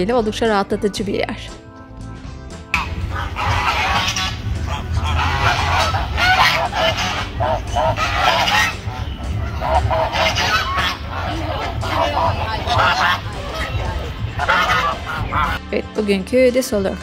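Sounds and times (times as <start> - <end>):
geese honking: 2.8 - 15.6.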